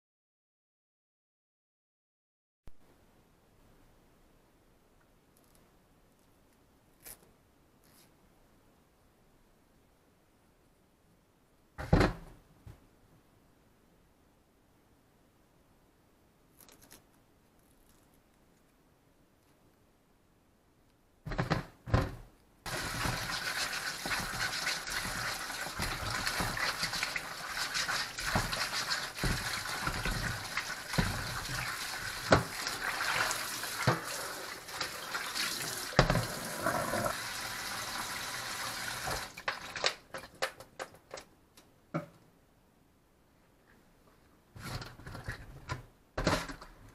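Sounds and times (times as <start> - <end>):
tap water running into basin: 22.7 - 40.0
water splashing: 22.7 - 40.0.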